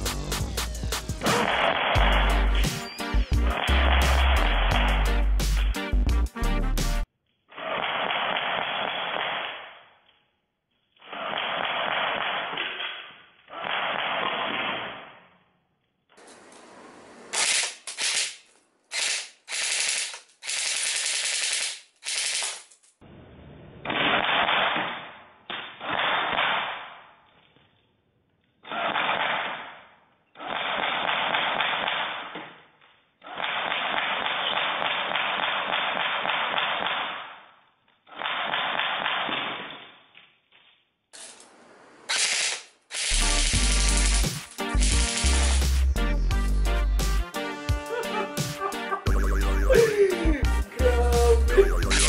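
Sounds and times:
airsoft gun firing bursts: 11.1 - 12.7, 17.4 - 22.6, 33.4 - 37.3, 38.1 - 39.7, 42.1 - 45.8.

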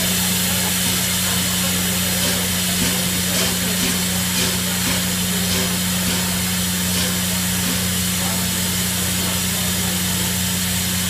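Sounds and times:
steam locomotive venting steam: 0.0 - 11.0.

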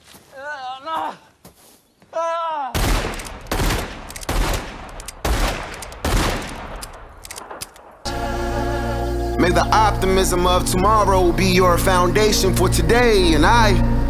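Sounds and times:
person crying out: 0.3 - 1.3, 2.1 - 2.8.

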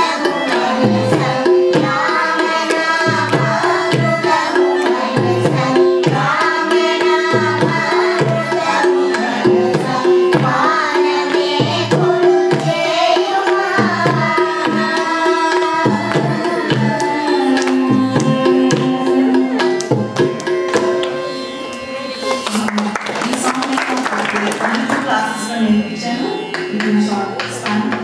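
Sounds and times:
woman and girls singing: 0.0 - 20.0
violin: 0.0 - 28.0.

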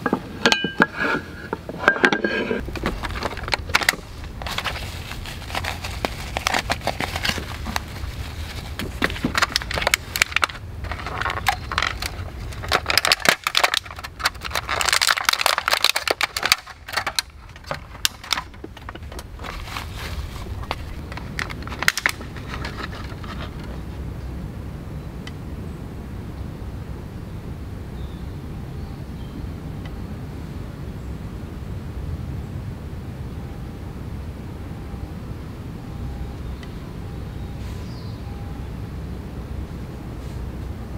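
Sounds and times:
plastic packaging crinkling: 2.6 - 23.8.

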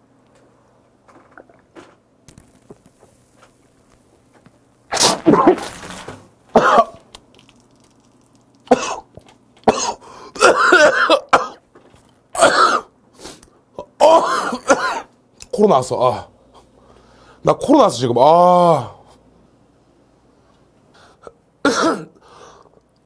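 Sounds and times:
man clearing throat: 6.5 - 7.0, 8.7 - 9.1, 9.7 - 11.6, 12.4 - 12.9, 13.9 - 15.1, 21.6 - 22.2
man coughing: 6.5 - 7.0, 8.7 - 9.1, 9.7 - 11.6, 12.4 - 12.9, 14.0 - 15.1, 21.6 - 22.2.

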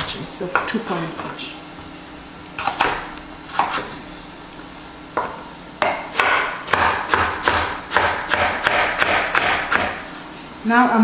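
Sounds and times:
knife chopping on wooden board: 2.6 - 3.9, 5.2 - 10.0.

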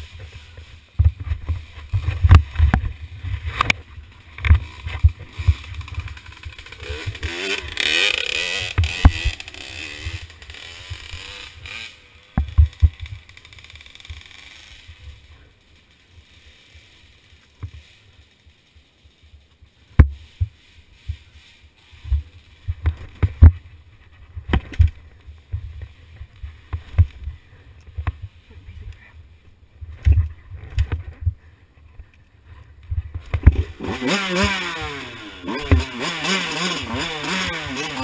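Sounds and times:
two-stroke engine revving: 4.4 - 15.2, 33.5 - 38.0.

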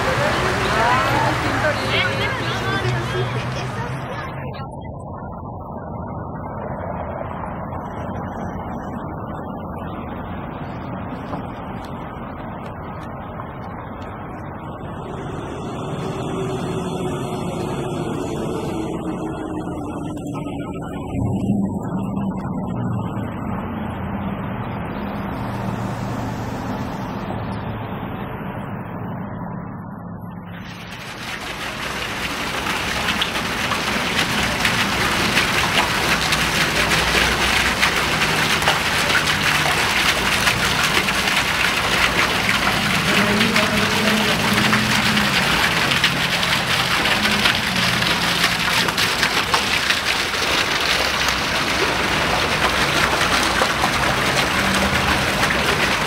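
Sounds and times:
low sustained drone: 14.4 - 25.2.

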